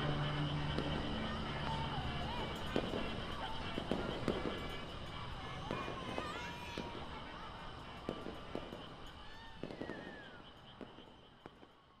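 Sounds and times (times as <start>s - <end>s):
firework whistles: 0.0s - 11.8s.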